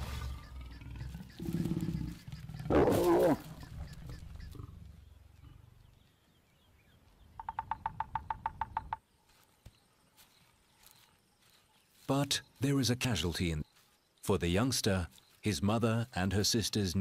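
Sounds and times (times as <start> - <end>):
lion growling and snarling: 0.0 - 5.7
woodpecker drumming on tree trunk: 7.4 - 9.1.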